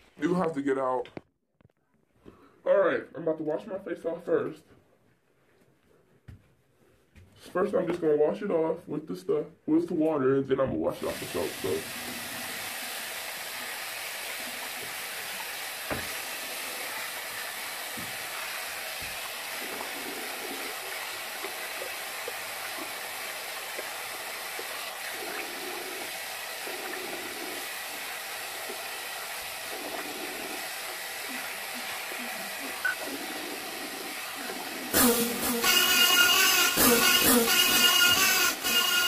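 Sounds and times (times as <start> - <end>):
tap running into sink: 14.6 - 16.3
knock: 15.9 - 16.1.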